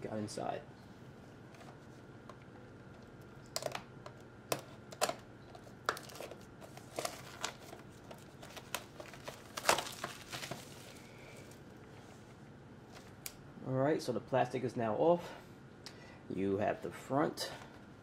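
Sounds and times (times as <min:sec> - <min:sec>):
plastic wrap crinkling and tearing: 0:04.9 - 0:11.7.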